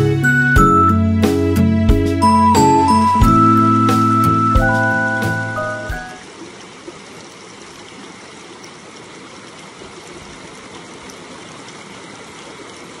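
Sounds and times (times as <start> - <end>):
stream flowing over rock: 4.7 - 13.0.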